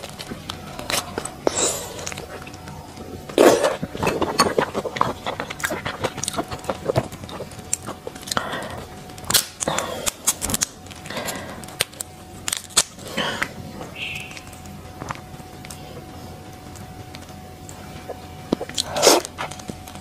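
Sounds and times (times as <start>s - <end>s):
slurping and chewing: 0.0s - 12.1s, 16.7s - 20.0s
shrimp shell cracking: 3.4s - 14.7s.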